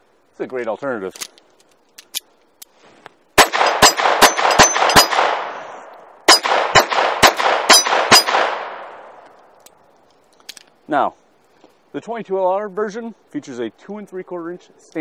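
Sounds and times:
gunshot echo: 0:03.4 - 0:09.2
pistol shots: 0:03.4 - 0:09.2.

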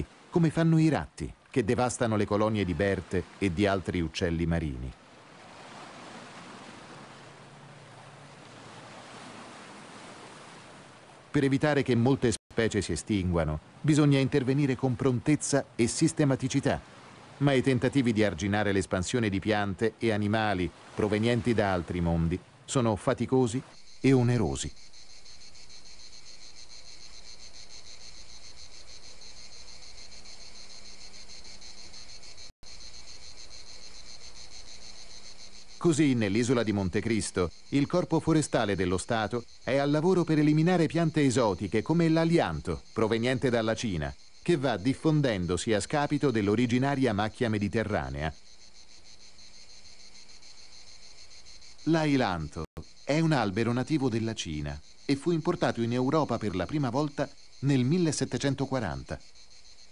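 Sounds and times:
surf: 0:00.0 - 0:24.4
wind: 0:00.0 - 0:59.9
insects chirring: 0:10.9 - 0:59.9.

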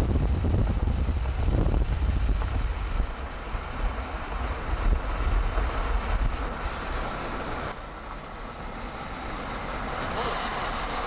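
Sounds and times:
wind buffeting microphone: 0:00.0 - 0:07.8.

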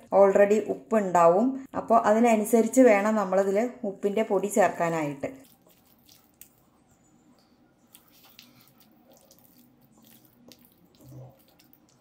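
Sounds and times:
wet squelches of prawns mixed by hand: 0:05.4 - 0:06.6, 0:07.9 - 0:12.0.

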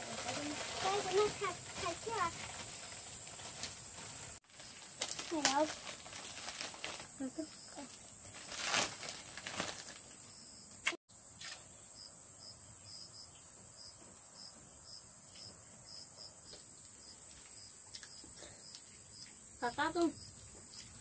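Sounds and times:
plastic crinkle: 0:00.0 - 0:10.3
insects shrilling: 0:00.2 - 0:11.0
repeating insect chirp: 0:11.7 - 0:21.0.

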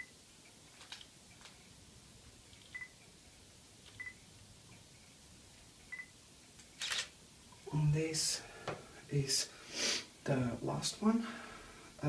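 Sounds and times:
soft camera clicks: 0:06.6 - 0:07.1
camera focus beeps: 0:06.8 - 0:07.1.

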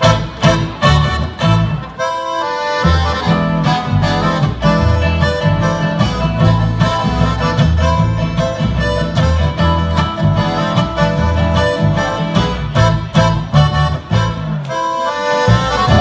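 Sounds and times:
live band playing dance tune: 0:00.0 - 0:16.0
pulsing bass line: 0:15.5 - 0:16.0.

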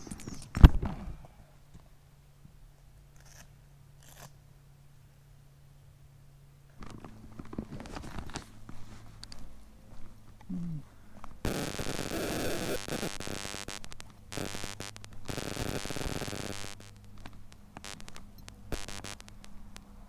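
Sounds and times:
faint low hum: 0:00.0 - 0:20.0
scratchy microphone noise: 0:11.4 - 0:19.4.

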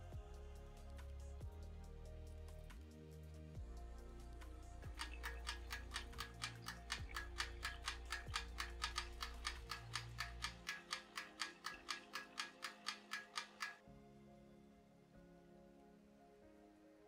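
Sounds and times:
cleaning machine clicking: 0:04.9 - 0:13.8.

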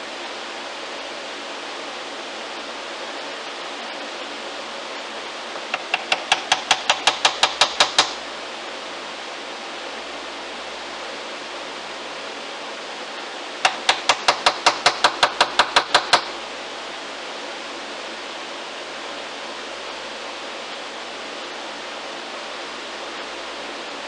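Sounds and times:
wooden mallet striking chisel: 0:05.7 - 0:08.2, 0:13.6 - 0:16.4.

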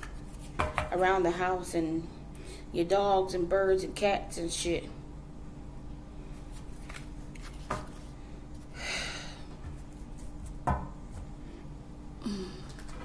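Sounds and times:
steady low hum: 0:00.0 - 0:13.0
cards rustling: 0:06.5 - 0:08.2.

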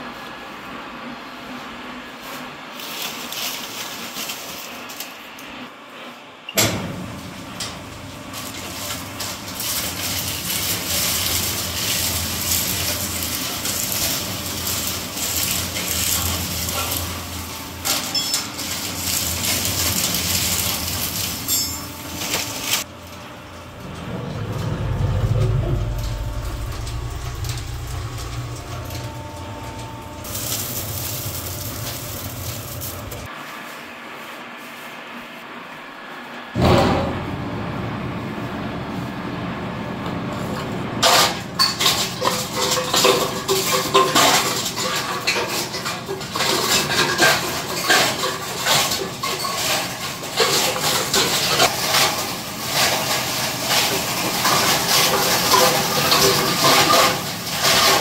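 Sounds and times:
shredder crackling: 0:02.7 - 0:05.5, 0:06.9 - 0:33.3, 0:41.0 - 0:58.0
low motor hum: 0:06.8 - 0:33.3.

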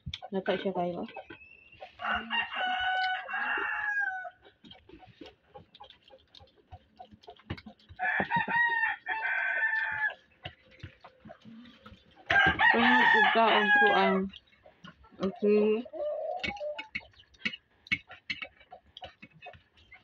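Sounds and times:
faint clicks and taps: 0:00.0 - 0:01.5, 0:04.4 - 0:12.7, 0:16.4 - 0:20.0
rooster crowing: 0:02.0 - 0:04.3, 0:08.0 - 0:10.2, 0:12.3 - 0:14.2.

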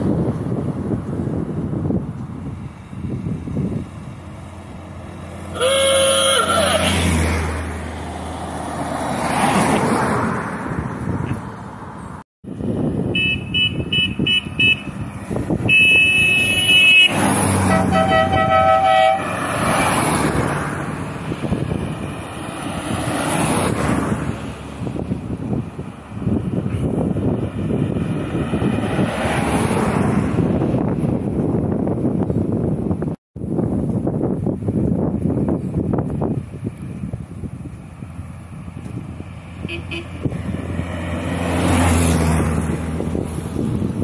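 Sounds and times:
cars driving past: 0:00.1 - 0:31.7, 0:35.4 - 0:44.0
car horns honking: 0:05.5 - 0:07.2, 0:13.0 - 0:15.0, 0:15.6 - 0:20.1, 0:39.6 - 0:40.3.

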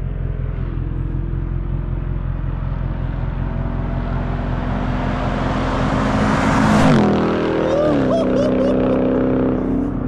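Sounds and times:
car engine approaching: 0:00.0 - 0:10.0.

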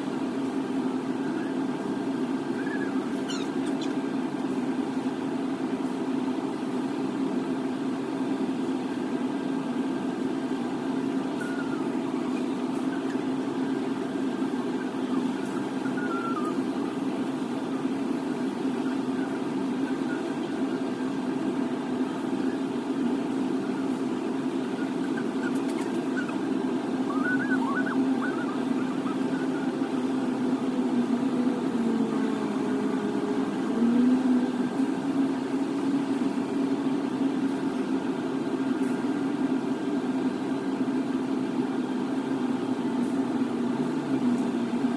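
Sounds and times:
low mechanical hum: 0:00.0 - 0:44.9.

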